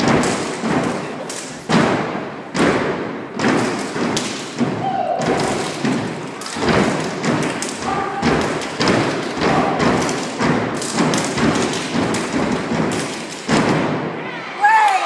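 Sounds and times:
body slaps: 0.0 - 2.0, 2.6 - 13.9
feet stomping on stage platform: 1.7 - 14.0
hand claps: 3.4 - 4.6, 5.2 - 13.7.

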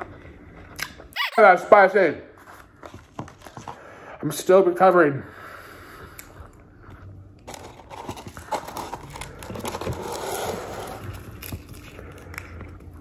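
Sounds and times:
paper packaging rustling: 7.4 - 12.0.

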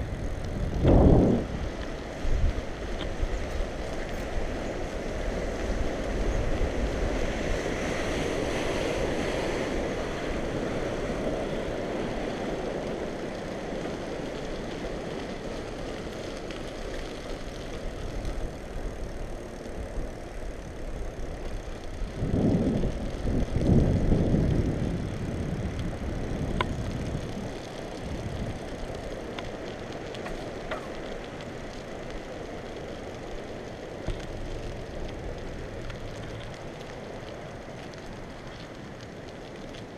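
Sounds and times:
wind on microphone: 0.0 - 7.7, 21.9 - 28.8
bicycle tyre noise: 0.0 - 39.9.

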